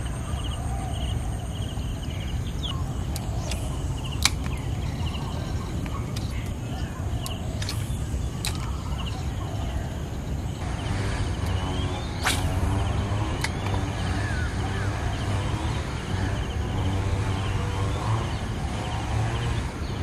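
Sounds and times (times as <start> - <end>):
steady low rumble: 0.0 - 20.0
fishing rod swishing: 12.1 - 13.0.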